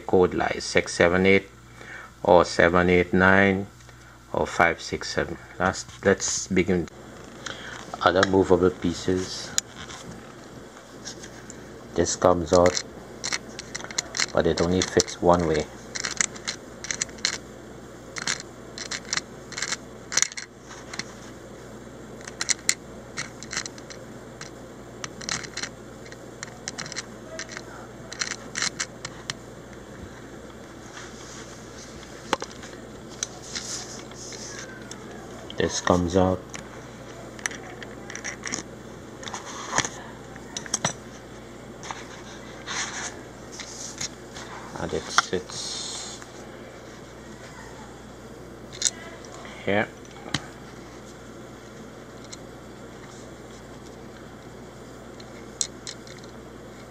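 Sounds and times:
plastic lock parts clicking: 0:26.4 - 0:29.4.

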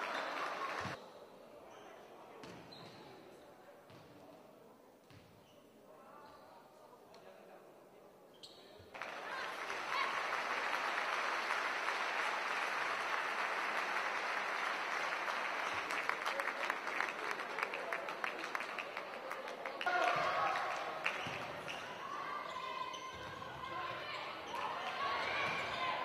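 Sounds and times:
crowd applauding: 0:00.0 - 0:01.0, 0:09.0 - 0:21.9.

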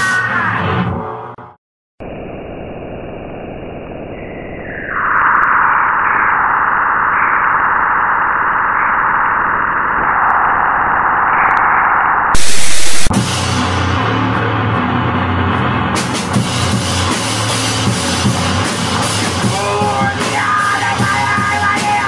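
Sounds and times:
harsh static noise: 0:02.0 - 0:13.7
loud noise blast: 0:02.0 - 0:20.9
drums: 0:12.4 - 0:22.0.

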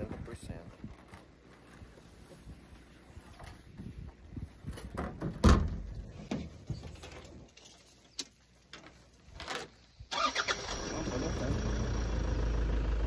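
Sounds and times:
vehicle engine starting and idling: 0:10.1 - 0:13.0.

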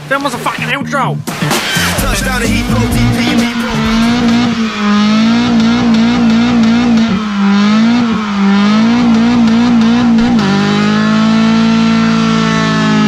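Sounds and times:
car engine revving high: 0:01.4 - 0:13.0
tires squealing on asphalt: 0:02.8 - 0:13.0.

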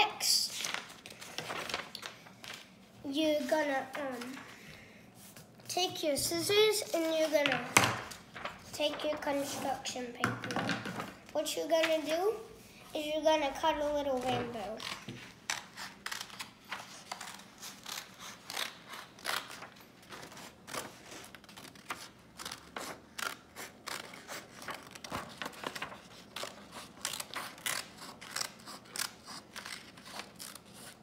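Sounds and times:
scissors snipping paper: 0:14.2 - 0:19.7, 0:20.3 - 0:31.0.

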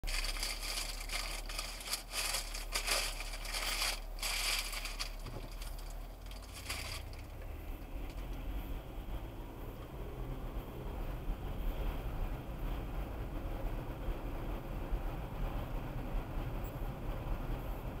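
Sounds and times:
irregular crackling: 0:00.0 - 0:07.4
car engine drone: 0:00.0 - 0:18.0
steady low hum: 0:00.0 - 0:18.0.

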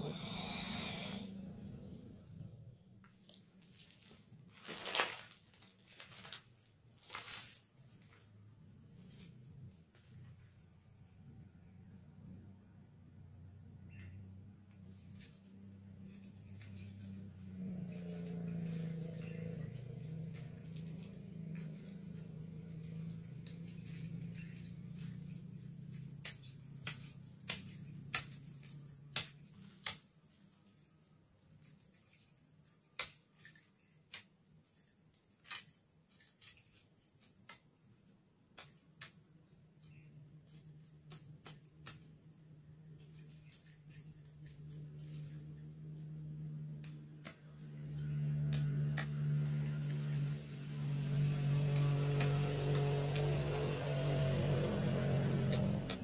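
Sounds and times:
steady low hum: 0:00.0 - 0:31.4
blade chopping through stalks: 0:46.7 - 0:56.0.

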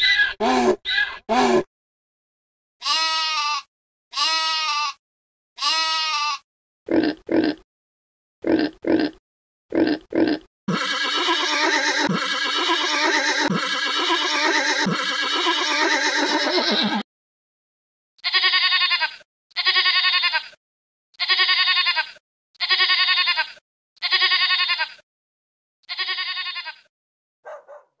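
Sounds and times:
goat bleating: 0:02.8 - 0:05.0, 0:05.6 - 0:06.4, 0:10.2 - 0:17.0, 0:18.2 - 0:20.6, 0:21.2 - 0:25.0, 0:25.8 - 0:26.9
pig grunting: 0:06.9 - 0:07.6, 0:08.4 - 0:17.0
horse sound: 0:08.4 - 0:17.0.

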